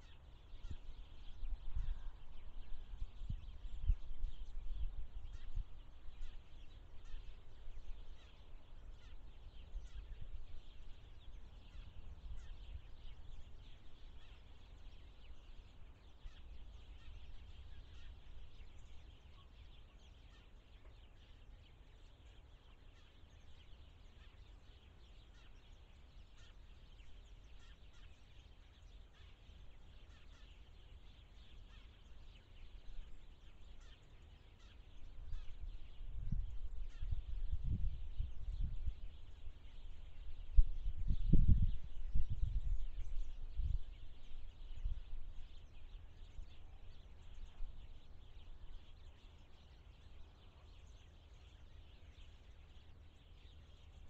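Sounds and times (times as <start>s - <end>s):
faint bird chirps: 0.0s - 54.0s.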